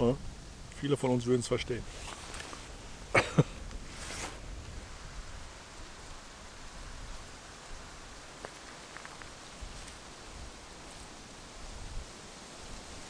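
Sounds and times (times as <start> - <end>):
soft outdoor hiss: 0.0 - 13.0
brief rustle: 1.9 - 2.7, 3.8 - 4.4.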